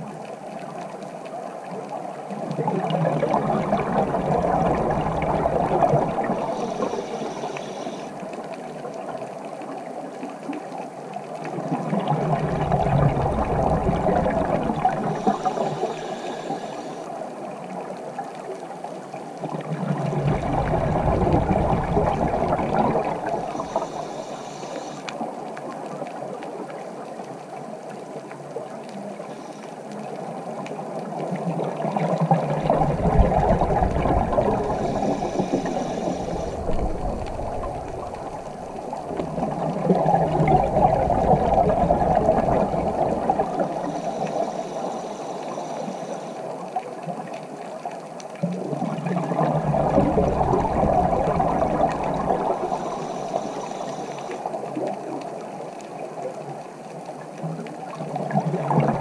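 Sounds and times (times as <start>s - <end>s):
steady watery wash: 0.0s - 59.0s
exhaled bubbles rumbling: 1.7s - 18.3s, 19.2s - 27.4s, 30.0s - 59.0s
regulator hissing: 6.5s - 8.1s, 23.4s - 25.1s.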